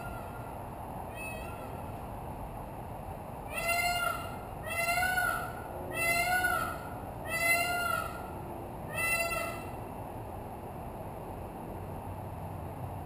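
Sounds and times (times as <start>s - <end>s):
peacock calling: 0.0s - 1.9s, 3.5s - 9.8s.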